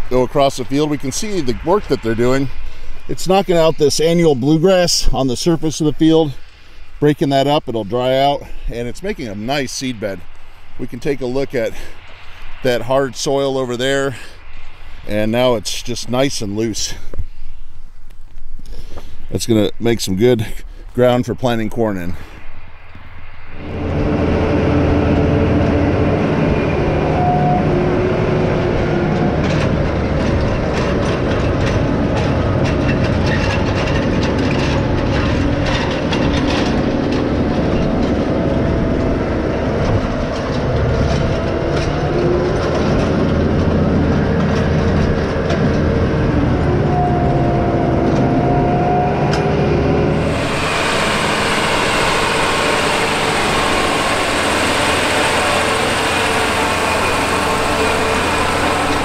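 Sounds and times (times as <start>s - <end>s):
tractor diesel engine running: 0.0s - 14.4s, 23.5s - 59.0s
tillage tool rattling and clanking: 29.2s - 46.4s, 50.2s - 59.0s.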